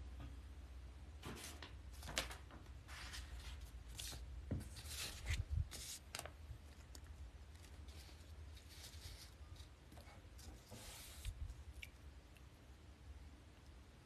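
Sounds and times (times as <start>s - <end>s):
paper rustling: 1.2s - 11.3s.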